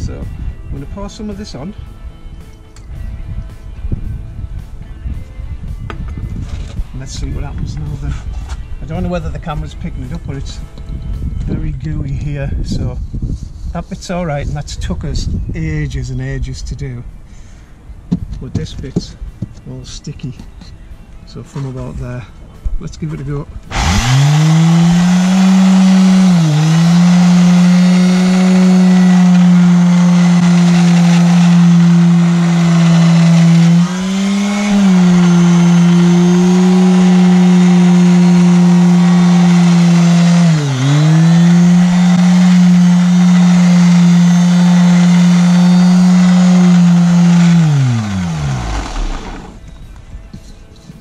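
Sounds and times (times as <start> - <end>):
electric sander humming: 23.7 - 49.6.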